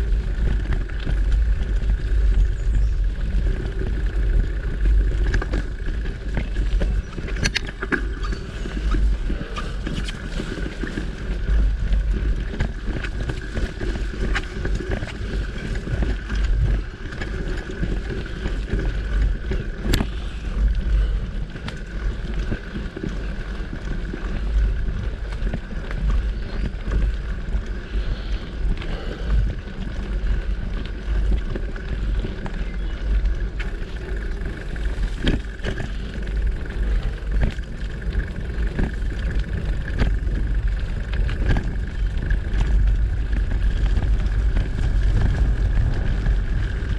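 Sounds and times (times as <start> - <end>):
bike clicks and rattles: 0.0 - 46.9
tyre and riding noise: 0.0 - 46.9
wind rumbling on microphone: 0.0 - 46.9.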